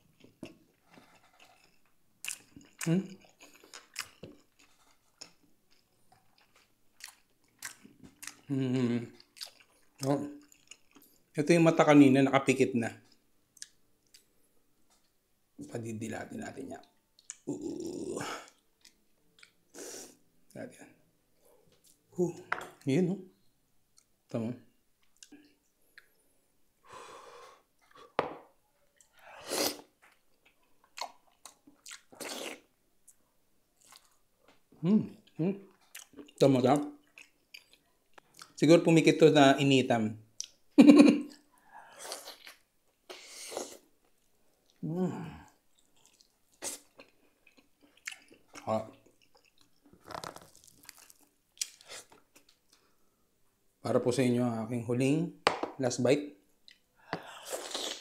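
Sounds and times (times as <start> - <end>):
person humming: 8.5 - 9.0
lip smacks and chewing: 45.7 - 49.8.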